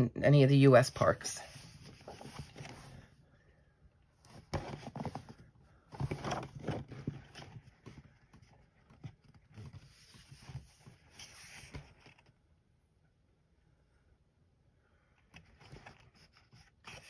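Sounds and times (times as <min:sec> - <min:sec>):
book pages rustling and tapping: 0:01.5 - 0:03.0, 0:04.2 - 0:12.3.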